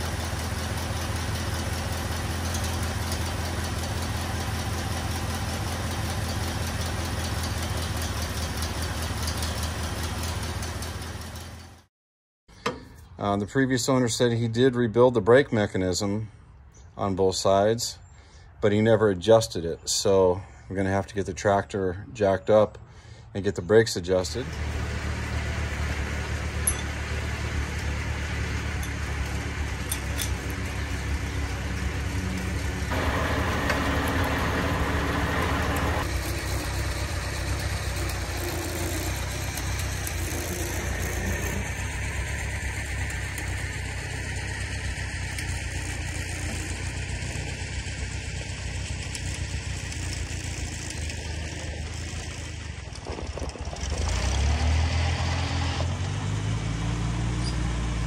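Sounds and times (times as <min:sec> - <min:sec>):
tractor engine running: 0:00.0 - 0:11.9, 0:23.8 - 0:58.0.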